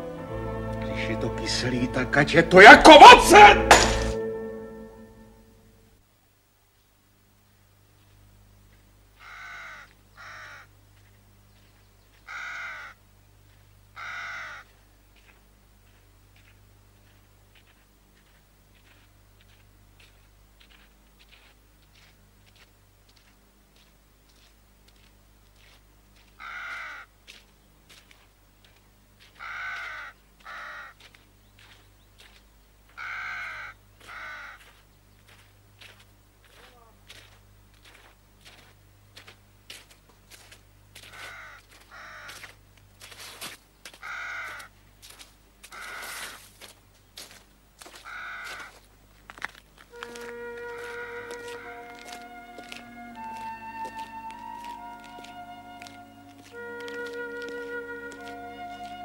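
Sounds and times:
faint steady low hum: 4.2s - 45.8s
crow cawing: 9.2s - 10.7s, 12.1s - 13.0s, 13.9s - 14.8s, 26.3s - 27.1s, 29.2s - 31.8s, 32.9s - 34.8s, 41.0s - 42.6s, 43.9s - 44.8s, 45.6s - 46.5s, 47.8s - 48.8s, 49.9s - 52.9s.

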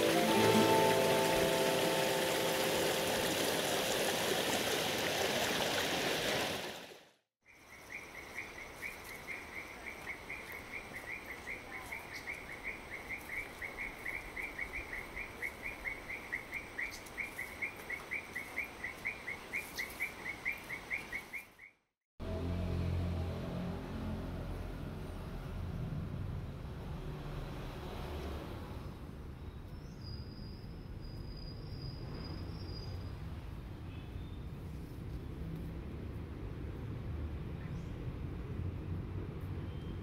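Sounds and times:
stream rushing over rocks: 0.0s - 7.1s.

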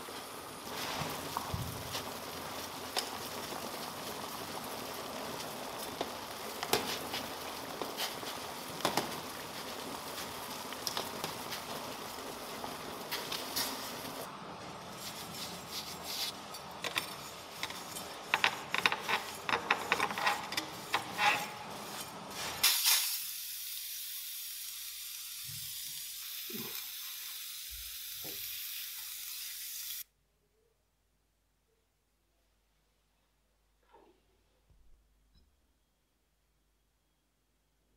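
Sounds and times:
bluing bath sizzling and bubbling: 0.0s - 30.1s.

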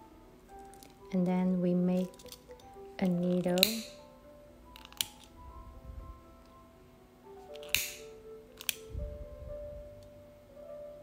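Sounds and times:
soft background music: 0.0s - 11.0s
sharp click: 7.6s - 8.9s.

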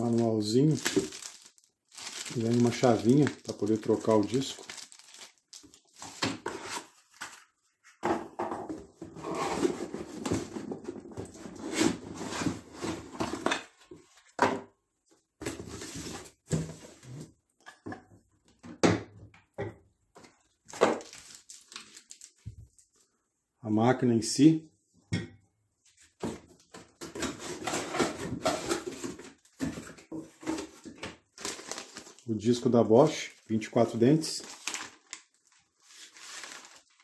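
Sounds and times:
cardboard packaging rustling: 0.0s - 7.7s, 20.7s - 22.9s, 27.2s - 32.3s, 34.4s - 37.0s.

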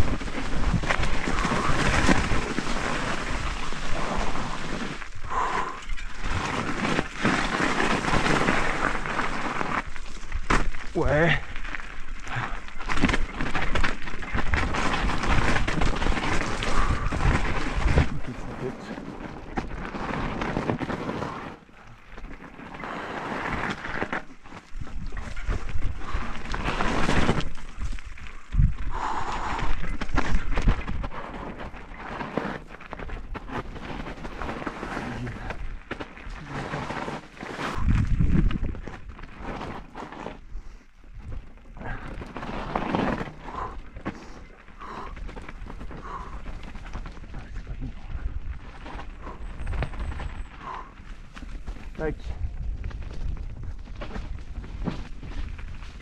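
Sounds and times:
wind rumble on microphone: 0.0s - 21.9s, 22.8s - 32.3s, 33.0s - 56.0s
bike tyres crackling through leaves: 0.0s - 56.0s
wind rushing over microphone: 37.7s - 39.0s.

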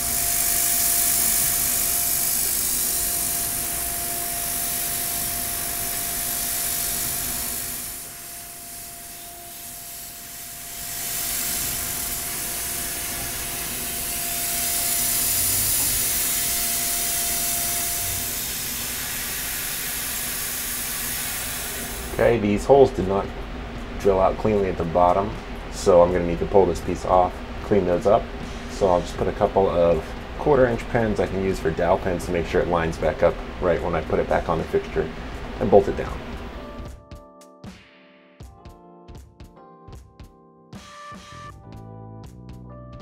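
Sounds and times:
coolant spray hissing: 0.0s - 22.5s
machine whine: 0.0s - 37.0s.

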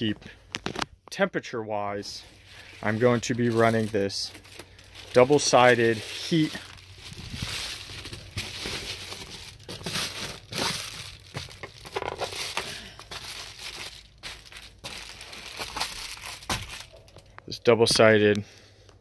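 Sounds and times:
foil insulation crinkling: 2.1s - 17.4s.

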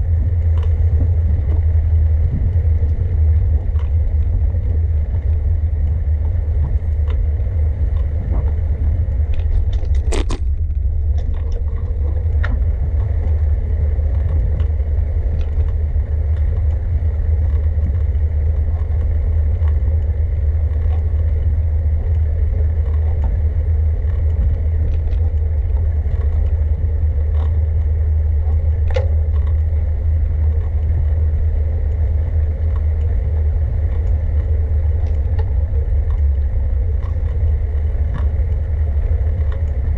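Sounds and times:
wind and road vibration rumble: 0.0s - 39.9s
bicycle clicks and rattles: 9.2s - 39.9s.

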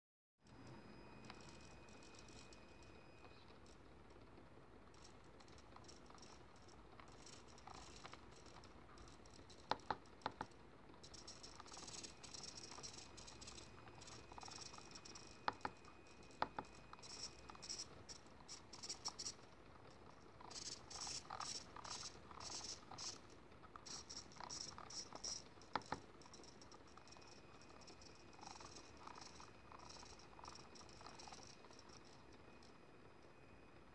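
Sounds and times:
faint high whine: 0.4s - 33.9s.

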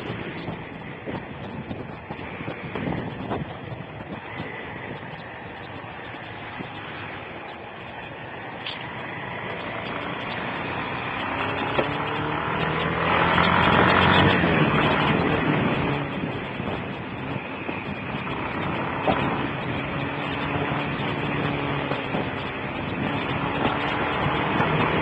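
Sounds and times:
motorcycle engine running: 0.0s - 25.0s
wind and road noise: 0.0s - 25.0s.

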